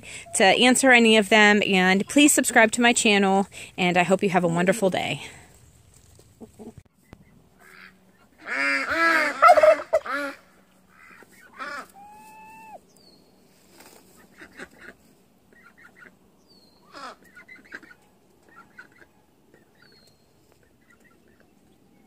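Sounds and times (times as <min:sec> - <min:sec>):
turkey and waterfowl calls: 0:06.4 - 0:12.8, 0:14.1 - 0:16.2, 0:16.8 - 0:21.5.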